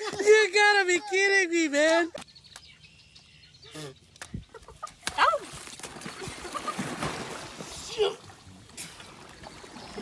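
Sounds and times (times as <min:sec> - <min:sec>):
rough splashing in water: 0:05.1 - 0:07.9.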